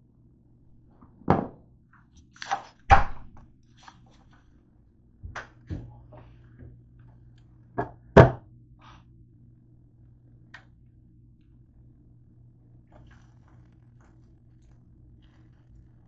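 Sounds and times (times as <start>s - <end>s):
faint low hum: 0.0s - 16.0s
knocks and thumps: 7.8s - 8.4s.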